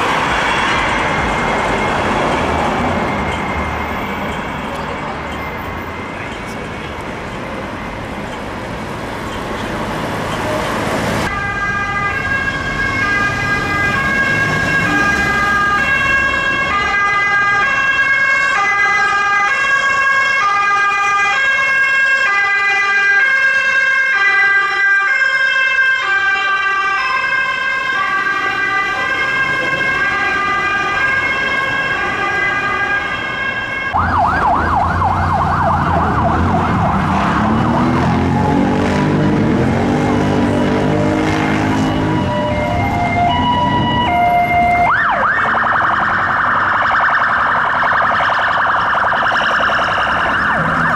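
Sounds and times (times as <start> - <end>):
two-tone ambulance siren: 0.0 - 6.6, 7.6 - 50.9
fast warbling siren: 11.3 - 50.9.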